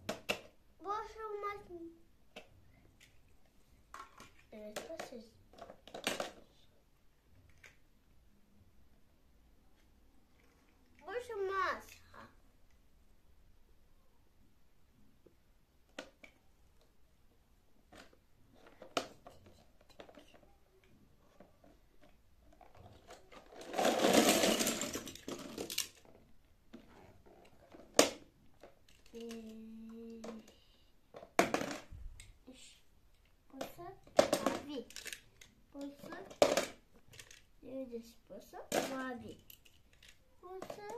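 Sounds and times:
plastic toy cars clattering: 0.0s - 0.6s, 3.9s - 6.6s, 7.3s - 7.8s, 17.9s - 32.3s, 33.2s - 40.9s
toys clicking: 28.6s - 30.6s, 33.1s - 37.5s, 38.7s - 40.9s.

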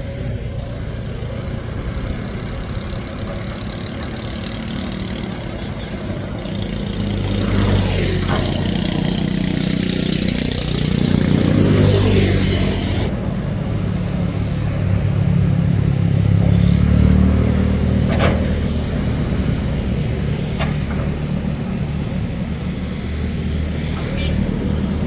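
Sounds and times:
excavator diesel engine: 0.0s - 25.0s.

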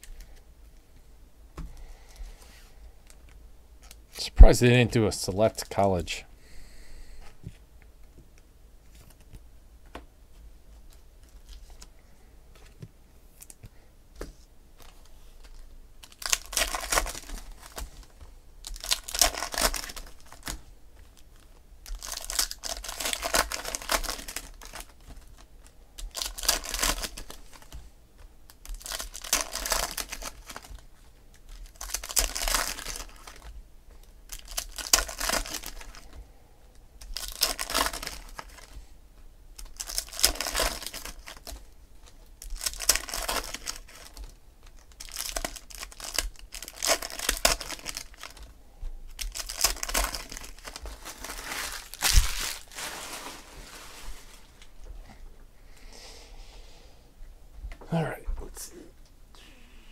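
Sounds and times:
foil wrappers tearing and crinkling: 15.4s - 27.8s, 28.5s - 30.8s, 31.4s - 33.5s, 34.3s - 36.2s, 37.0s - 38.8s, 39.6s - 48.5s, 49.1s - 54.6s.

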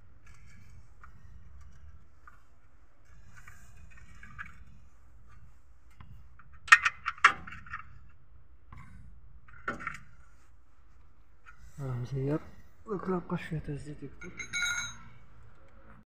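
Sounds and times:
sharp metallic clinks: 14.2s - 15.2s.

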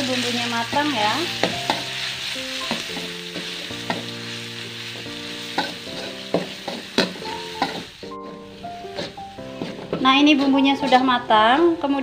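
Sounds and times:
paste sizzling in a pan: 0.0s - 12.0s
metal spoon scraping pan: 5.5s - 11.2s.

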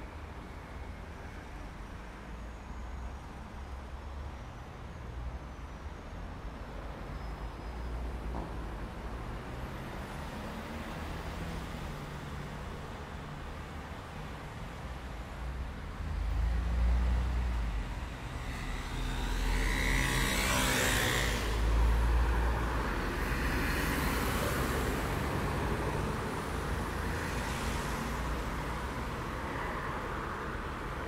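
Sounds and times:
vehicles passing: 8.4s - 31.0s.

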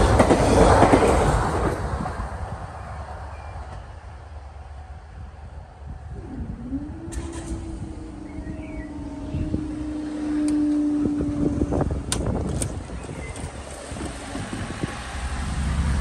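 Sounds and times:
wind rumble on microphone: 0.0s - 16.0s
barrier motor humming: 6.0s - 16.0s.

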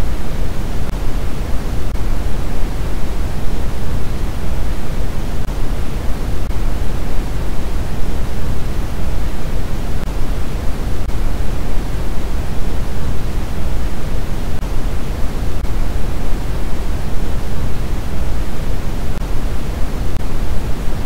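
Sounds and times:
white noise hiss: 0.0s - 21.0s.

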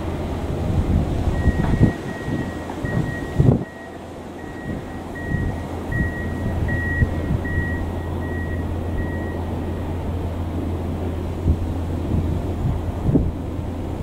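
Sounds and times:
diesel locomotive engine drone: 0.0s - 14.0s
high beeping tone: 1.4s - 10.0s.

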